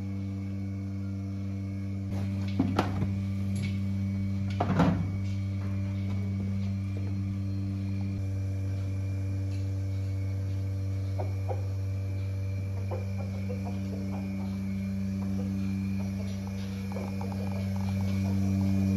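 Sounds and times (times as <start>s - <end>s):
machinery electric hum: 0.0s - 18.9s.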